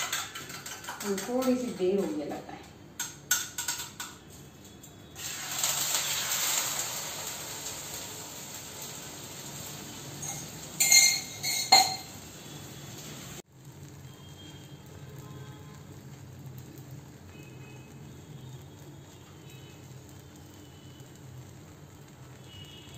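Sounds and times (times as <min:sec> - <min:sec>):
steel utensils clinking: 0:00.0 - 0:02.4, 0:10.1 - 0:12.2
egg sizzling on hot pan: 0:00.0 - 0:22.9
spoon clinking in steel tumbler: 0:10.2 - 0:12.1.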